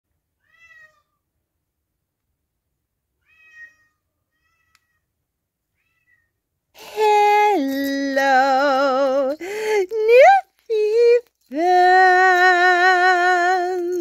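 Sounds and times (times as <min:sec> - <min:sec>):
cat meowing: 0:00.4 - 0:01.2, 0:03.2 - 0:05.1, 0:05.7 - 0:06.4.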